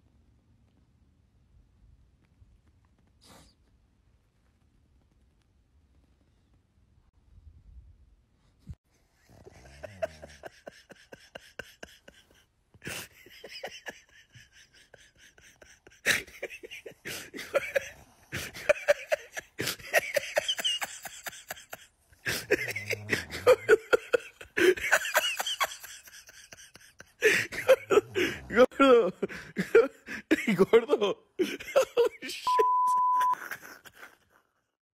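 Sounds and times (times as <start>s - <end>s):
person stifling laughter: 9.2s - 32.6s, 33.2s - 34.5s.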